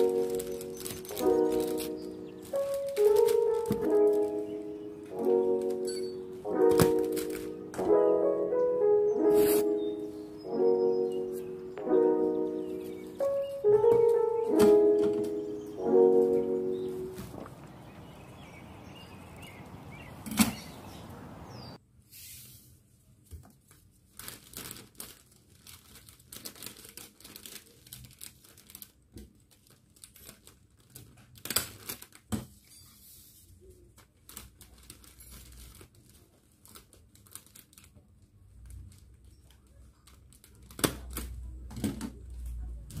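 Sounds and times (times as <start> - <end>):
cellophane crinkling: 0.0 - 8.0, 23.6 - 41.7.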